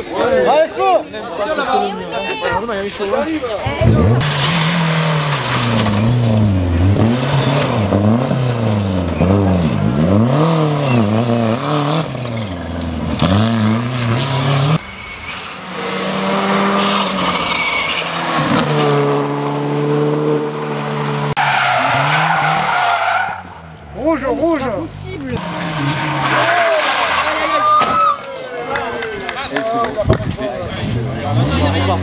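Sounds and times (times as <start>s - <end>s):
rally car engines revving: 3.1s - 28.2s, 29.8s - 32.0s
tyres sliding: 25.2s - 29.3s.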